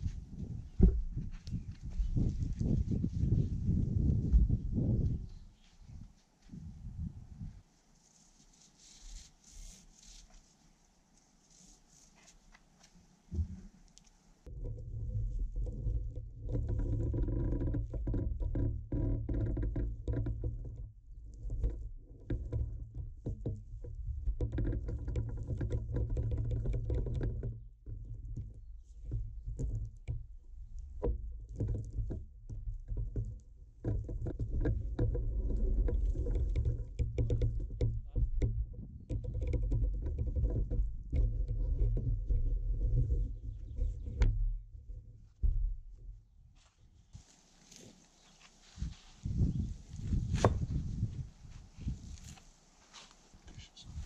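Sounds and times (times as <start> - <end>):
wooden crane and rope creaking: 11.1 - 54.0
deep steady rumble: 14.4 - 25.4, 27.3 - 46.6, 48.8 - 52.4.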